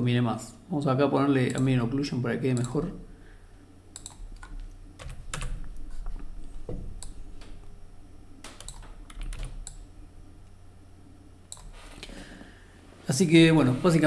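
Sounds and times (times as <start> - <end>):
low steady hum: 0.0 - 14.0
keyboard keystrokes and clicks: 4.0 - 6.2, 8.4 - 9.8, 11.5 - 11.7.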